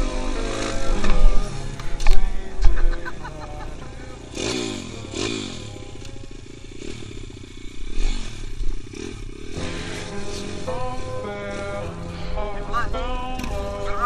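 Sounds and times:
pitbike engine revving: 0.0s - 14.0s.

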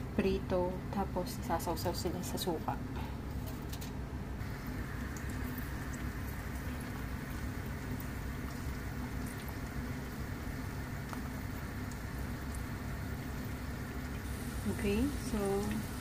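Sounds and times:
food deep-frying in oil: 4.4s - 16.0s.

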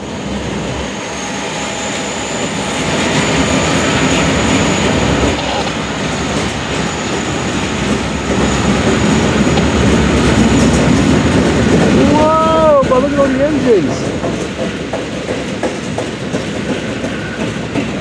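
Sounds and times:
steel wheels on rails: 0.1s - 18.0s
diesel engines rumbling: 4.1s - 14.0s.

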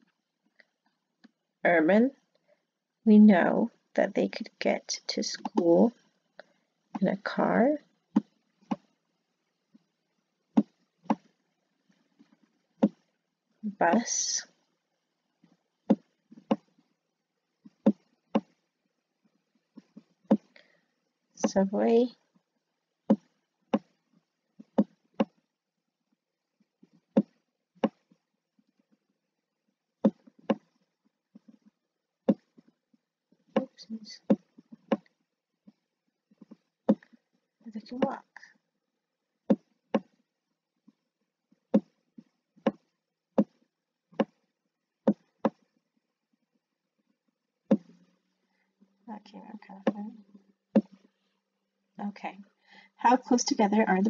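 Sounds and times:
stylus tapping on writing surface: 24.7s - 25.4s, 30.1s - 30.7s, 32.3s - 32.6s, 41.8s - 42.0s, 44.2s - 44.4s, 45.1s - 45.6s, 50.8s - 51.0s.

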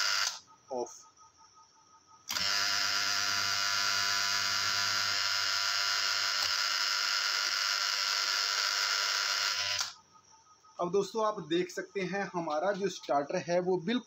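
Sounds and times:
loud electrical buzz: 0.0s - 0.4s, 2.3s - 10.0s.

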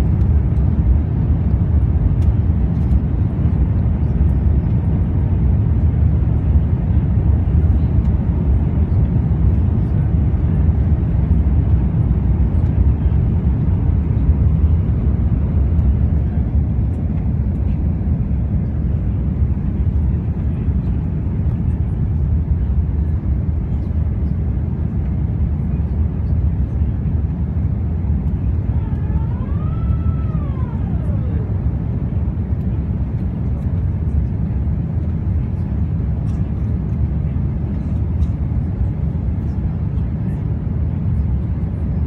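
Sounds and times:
jet engine roar in cabin: 0.0s - 42.0s.

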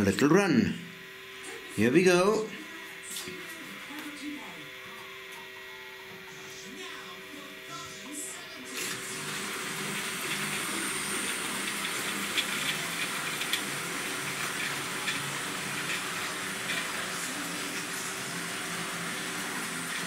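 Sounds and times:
model trains whirring on rails: 8.8s - 20.0s
wheels clicking over track: 9.9s - 17.9s.

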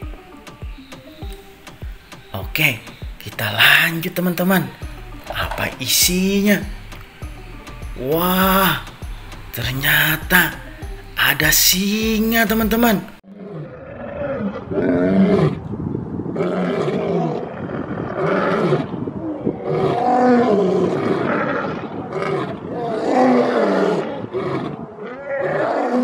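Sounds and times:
lions roaring: 13.3s - 15.7s, 16.3s - 26.0s.

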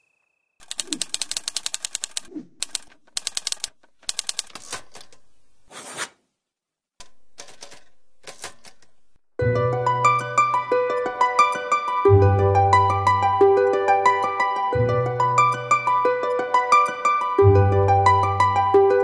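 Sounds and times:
typewriter key strikes: 0.6s - 5.0s
short swish: 2.3s - 2.6s
plucked-string music: 9.4s - 19.0s.

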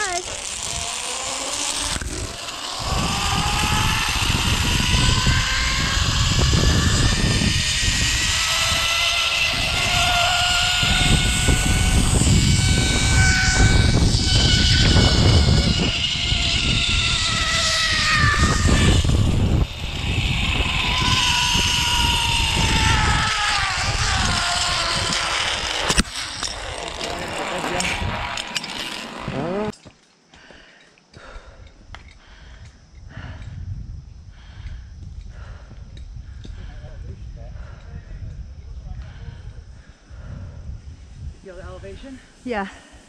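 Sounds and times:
wind rumble on microphone: 0.0s - 28.6s, 31.2s - 43.0s
pulleys whining on cable: 0.0s - 29.9s.

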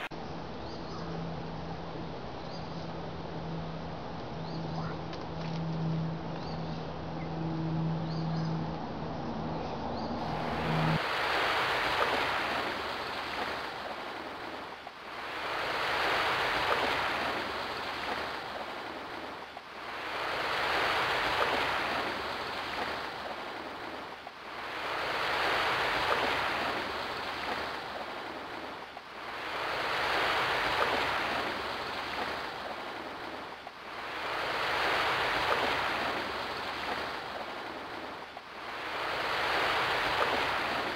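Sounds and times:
steady low tone: 0.1s - 11.0s
waves breaking on beach: 10.2s - 40.9s.

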